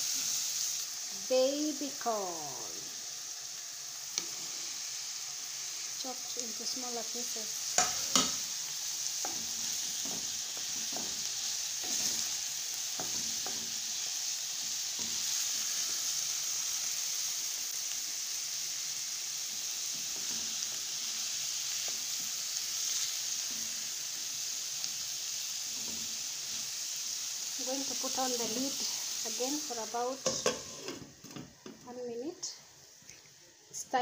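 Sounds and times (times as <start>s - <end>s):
vegetables sizzling in a pan: 0.0s - 34.0s
wooden spatula tapping and scraping: 7.8s - 8.4s, 9.2s - 12.3s.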